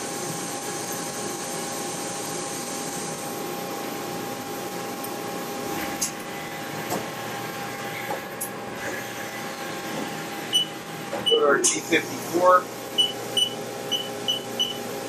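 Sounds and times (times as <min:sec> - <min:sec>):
machinery humming: 0:06.2 - 0:15.0.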